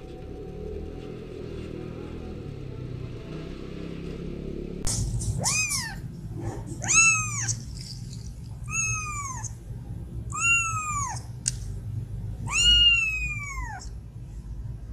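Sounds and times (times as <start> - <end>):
kitten mewing: 5.2 - 9.7, 10.3 - 11.5, 12.4 - 14.0.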